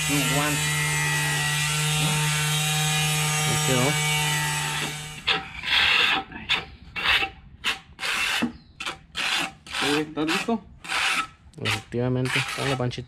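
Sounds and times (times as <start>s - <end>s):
abrasive pad rasping on tile: 0.0s - 13.0s.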